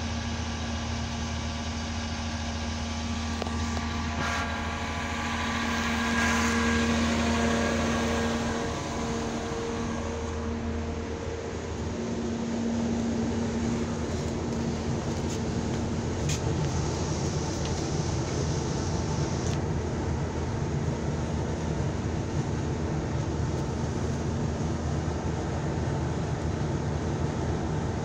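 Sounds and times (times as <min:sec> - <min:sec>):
bus engine idling: 0:00.0 - 0:28.0
whining tones: 0:00.2 - 0:18.9.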